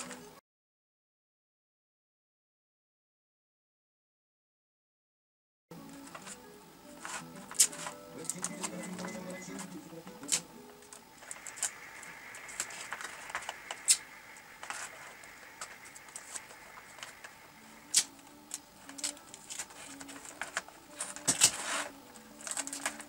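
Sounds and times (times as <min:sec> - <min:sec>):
cardboard and paper crinkling: 0:07.0 - 0:23.0.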